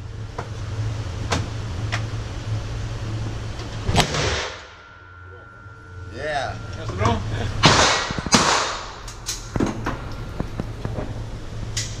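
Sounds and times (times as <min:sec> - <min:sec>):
low hum: 0:00.0 - 0:12.0
handgun shots echoing: 0:07.6 - 0:09.0.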